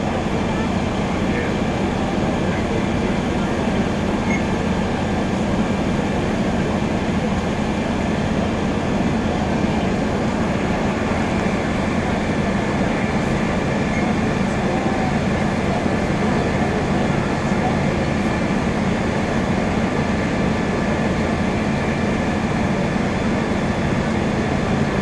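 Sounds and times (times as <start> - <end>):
fire engines droning: 0.0 - 25.0.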